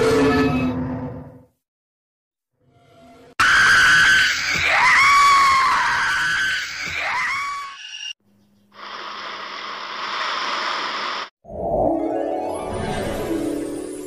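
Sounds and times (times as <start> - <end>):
shrill scream: 3.4 - 8.2.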